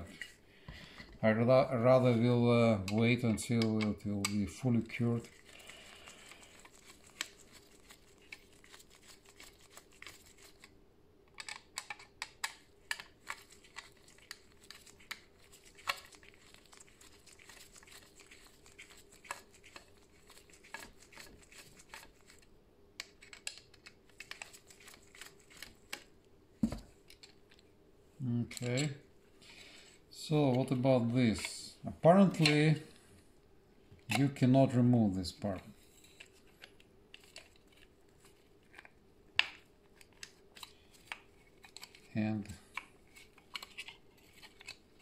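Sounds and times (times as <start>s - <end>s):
screwdriver clicks and plastic rattles: 11.3s - 14.4s.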